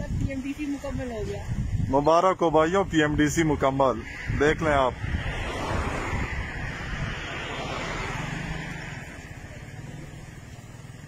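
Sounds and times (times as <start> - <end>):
passing car rushing: 2.8 - 11.0.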